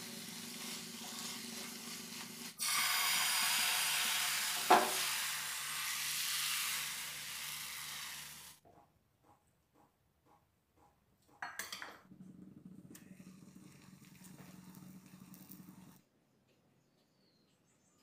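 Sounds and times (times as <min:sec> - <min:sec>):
food sizzling in a frying pan: 0:00.0 - 0:08.6.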